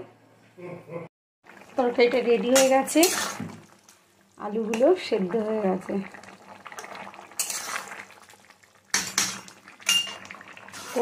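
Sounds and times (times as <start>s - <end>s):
spatula scraping through sauce: 7.4s - 7.9s.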